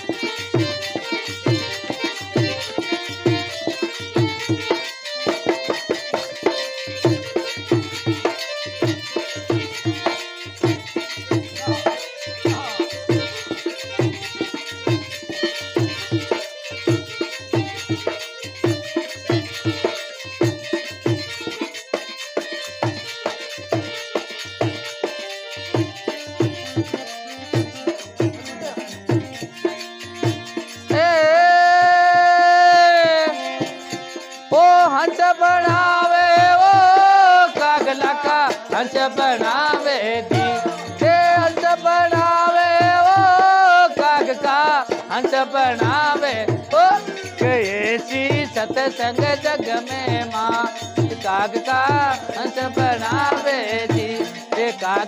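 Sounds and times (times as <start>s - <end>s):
hand drum beating rhythm: 0.0s - 55.0s
harmonium tones: 0.0s - 55.0s
man singing long held notes: 30.9s - 33.8s, 34.5s - 55.0s.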